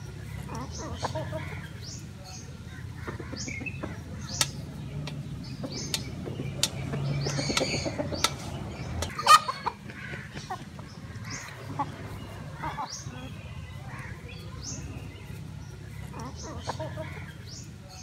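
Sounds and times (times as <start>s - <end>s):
hens clucking: 0.0s - 18.0s
sharp clicks: 4.3s - 9.2s.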